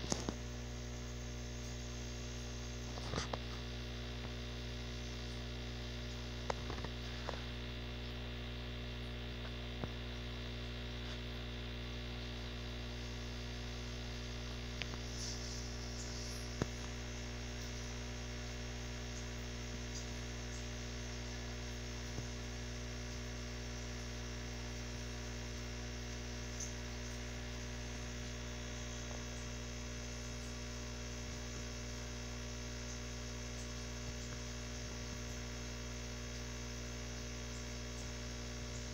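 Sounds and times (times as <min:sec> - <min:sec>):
air pump humming: 0:00.0 - 0:38.9.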